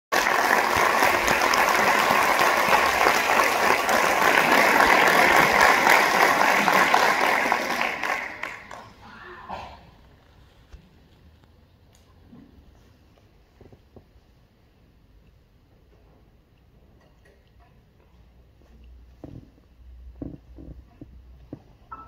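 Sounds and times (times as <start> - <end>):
audience applauding: 0.1 - 9.0.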